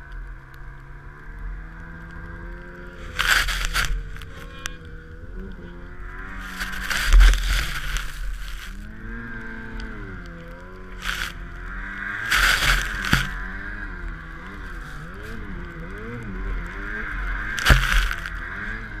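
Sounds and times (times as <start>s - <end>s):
snowmobile engine revving: 1.4s - 19.0s
snow spraying: 3.0s - 4.4s, 11.0s - 13.5s.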